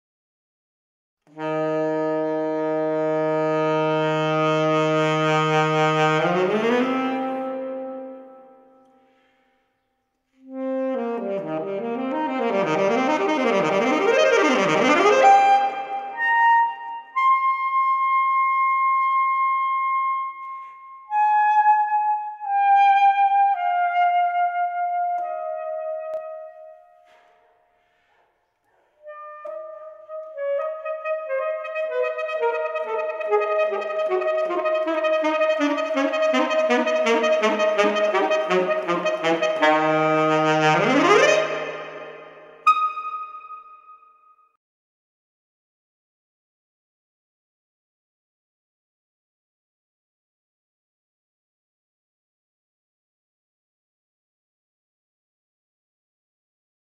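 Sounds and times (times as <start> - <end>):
alto saxophone long notes: 1.3 - 9.0, 10.4 - 18.6, 29.1 - 43.2.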